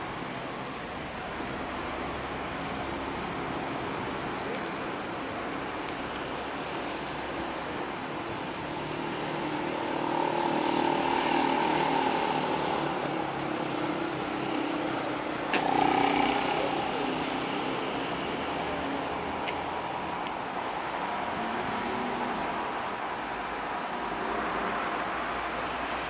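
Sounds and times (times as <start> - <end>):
constant high whine: 0.0 - 26.0.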